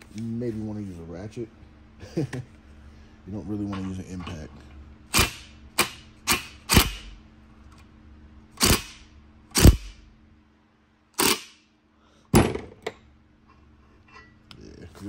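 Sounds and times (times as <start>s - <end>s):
power driver bursts: 8.6s - 10.0s, 11.2s - 11.6s.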